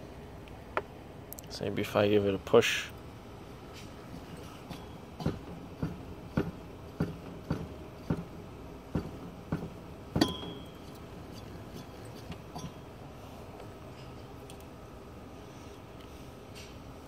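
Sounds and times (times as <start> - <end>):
metallic clinks and knocks: 10.2 - 12.9.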